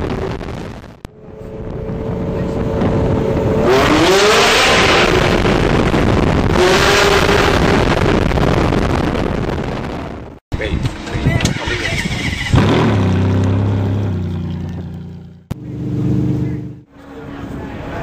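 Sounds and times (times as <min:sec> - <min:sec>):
sports car engines revving: 0:01.1 - 0:08.4, 0:10.7 - 0:18.0.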